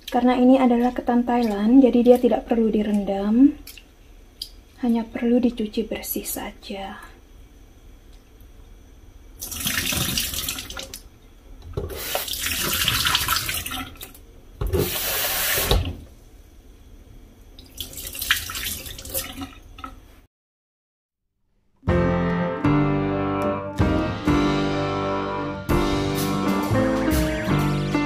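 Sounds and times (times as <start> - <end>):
rinse water poured off: 9.4 - 11.0, 11.9 - 14.2, 17.6 - 19.9
tap water splashing in sink: 9.4 - 11.0.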